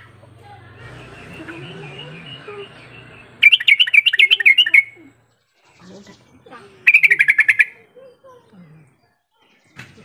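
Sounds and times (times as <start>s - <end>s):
bird singing chattering notes: 0.9s - 8.3s.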